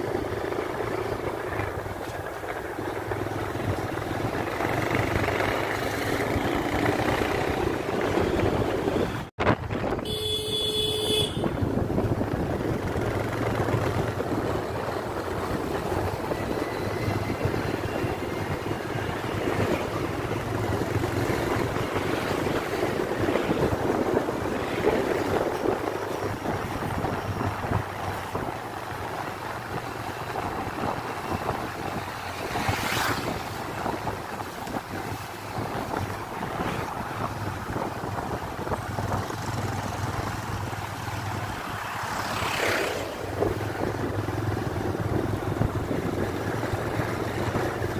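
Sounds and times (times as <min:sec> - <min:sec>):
engine and tyre noise: 0:00.0 - 0:47.9
wind on microphone: 0:00.0 - 0:47.9
vehicle horn toot: 0:10.0 - 0:11.6.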